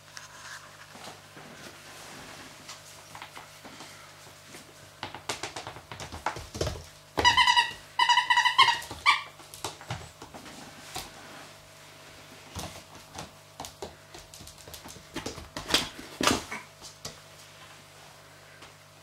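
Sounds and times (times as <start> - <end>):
clicks and knocks on hard floor: 5.0 - 7.5, 12.5 - 17.2
puppy squealing: 7.2 - 9.4.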